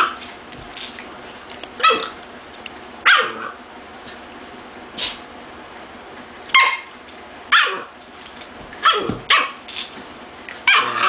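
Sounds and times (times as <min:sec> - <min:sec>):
dogs play-barking: 0:00.0 - 0:00.4, 0:01.8 - 0:02.2, 0:03.0 - 0:04.2, 0:06.4 - 0:08.1, 0:08.7 - 0:09.8, 0:10.5 - 0:11.0.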